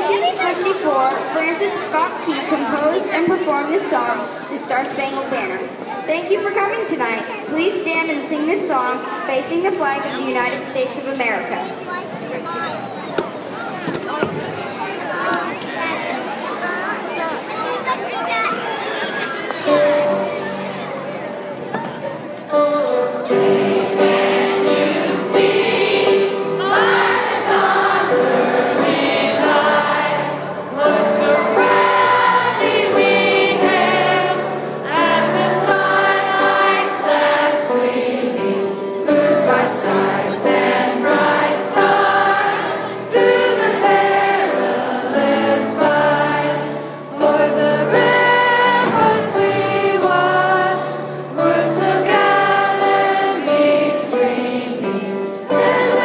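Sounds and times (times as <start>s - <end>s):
children and adults singing together: 21.5s - 56.0s.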